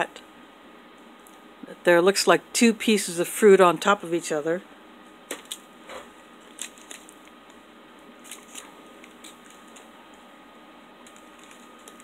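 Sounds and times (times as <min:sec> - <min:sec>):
plastic wrapper crinkling: 0:06.4 - 0:07.6, 0:08.2 - 0:10.0, 0:11.0 - 0:12.0.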